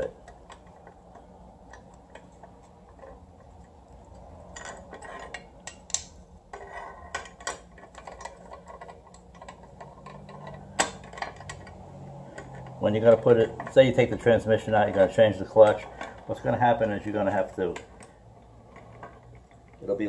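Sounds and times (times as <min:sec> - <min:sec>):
hand tools scraping metal: 0:00.0 - 0:20.0
metal clicks and taps: 0:00.1 - 0:06.2.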